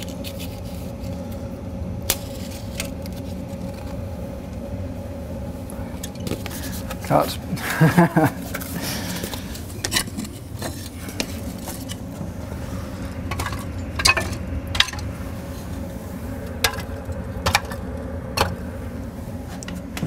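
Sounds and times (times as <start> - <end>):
low fan hum: 0.0 - 20.0.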